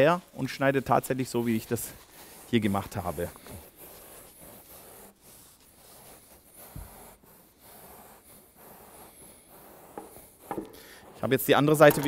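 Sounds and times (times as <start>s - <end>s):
knife sawing insulation board: 0.0s - 11.9s.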